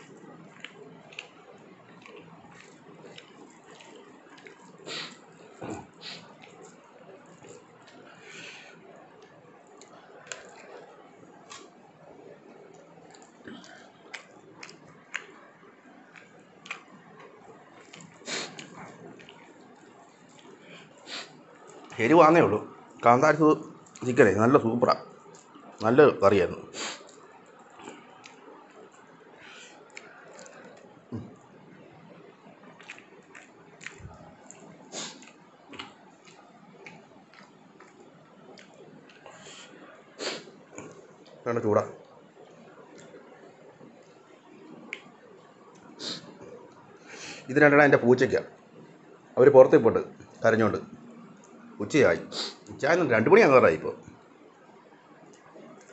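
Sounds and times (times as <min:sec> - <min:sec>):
person chewing food: 0:00.0 - 0:22.0, 0:25.1 - 0:25.8, 0:26.8 - 0:41.4, 0:42.0 - 0:46.8
rice squishing by hand: 0:00.0 - 0:22.4.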